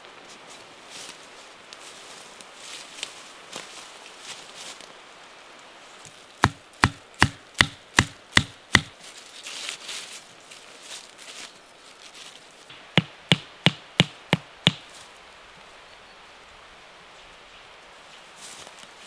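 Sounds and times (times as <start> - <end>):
hammer knocking tent stake: 6.4 - 9.0, 12.9 - 14.9.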